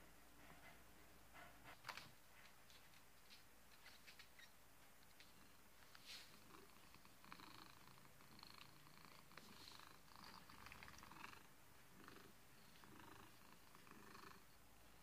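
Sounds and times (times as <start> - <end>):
cat purring: 5.2 - 15.0.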